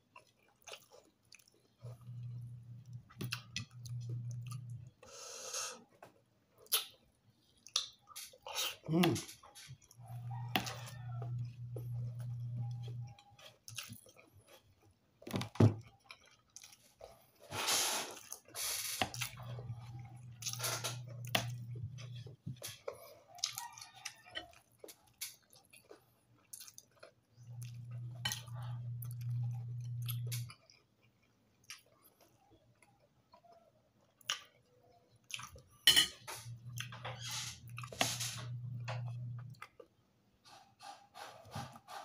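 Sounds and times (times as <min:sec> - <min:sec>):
person chewing food: 0:00.0 - 0:42.0
mouth clicks and smacks: 0:06.6 - 0:07.0
steady low hum: 0:09.2 - 0:13.2.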